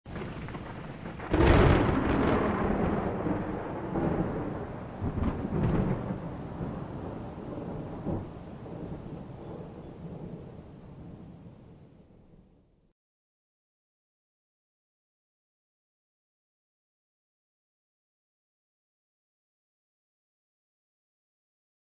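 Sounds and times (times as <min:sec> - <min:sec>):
thunder rumbling: 0:00.1 - 0:12.5.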